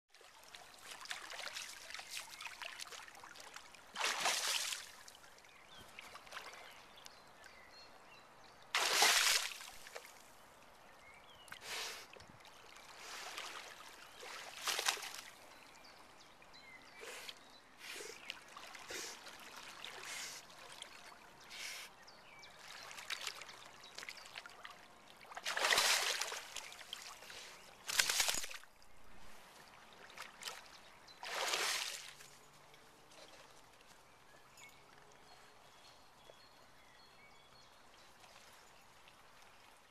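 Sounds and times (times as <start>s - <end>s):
dog splashing in water: 4.0s - 4.8s, 8.8s - 9.7s, 27.9s - 28.6s.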